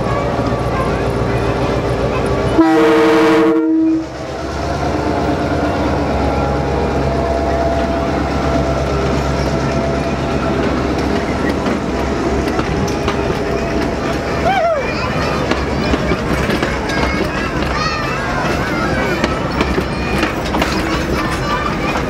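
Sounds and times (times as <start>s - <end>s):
locomotive engine humming: 0.0s - 22.0s
locomotive horn: 2.5s - 4.2s.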